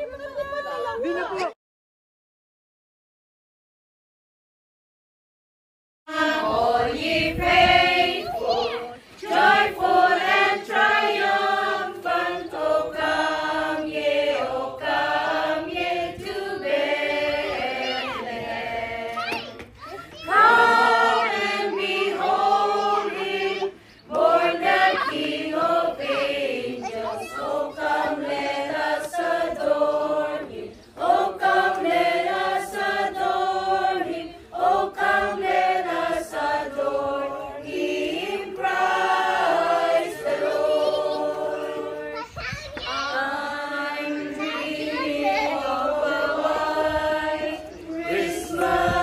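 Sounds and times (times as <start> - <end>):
group singing choir-style: 0.0 - 1.5, 6.1 - 19.6, 20.2 - 42.2, 43.0 - 49.0.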